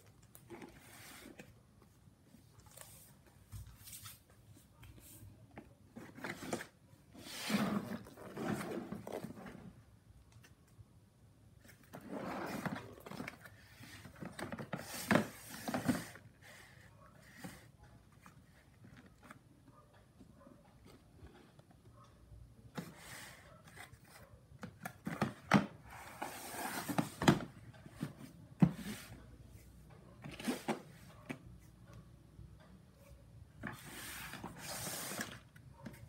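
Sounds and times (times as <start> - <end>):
cardboard and plastic rustling: 0.0 - 9.8, 11.6 - 19.5, 22.7 - 31.4.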